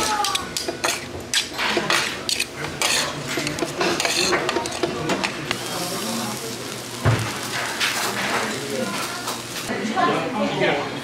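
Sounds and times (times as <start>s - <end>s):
rice sizzling: 0.0s - 10.2s
metal spoons scraping tray: 0.6s - 5.3s.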